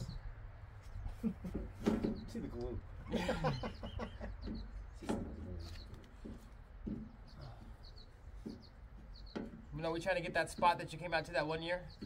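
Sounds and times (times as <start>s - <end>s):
bird chirps: 0.0s - 1.3s, 3.3s - 12.0s
bird clucking: 3.2s - 5.0s.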